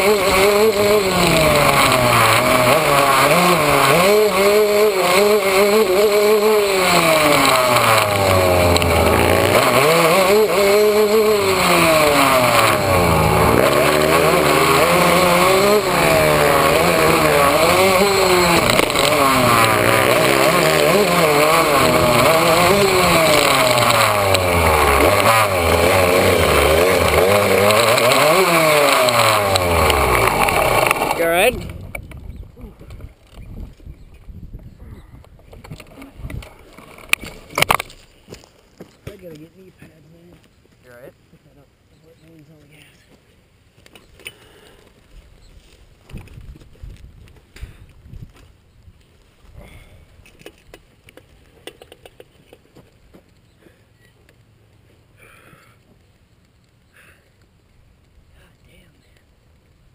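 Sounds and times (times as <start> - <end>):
dirt bike engine revving: 0.0 - 31.7.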